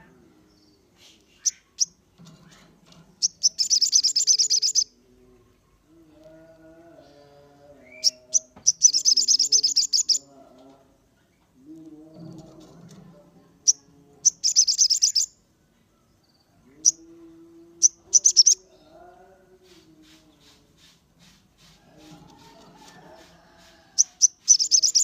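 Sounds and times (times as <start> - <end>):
bird chattering trills: 3.2 - 4.9, 8.0 - 10.2, 13.7 - 15.3, 17.8 - 18.6, 24.0 - 25.0
sharp bird chips: 3.2 - 4.9, 8.7 - 10.2, 14.3 - 15.3, 18.1 - 18.6, 24.0 - 25.0.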